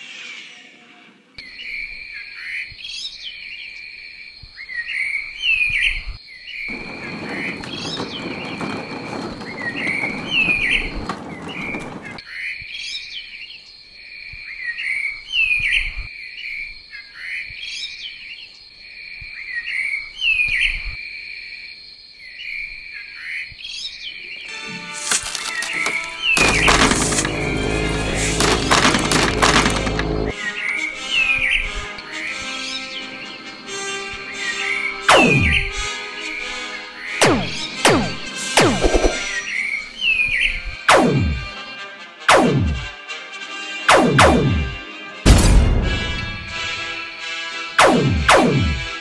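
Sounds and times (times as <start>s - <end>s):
birds chirping and calling: 6.7s - 12.2s.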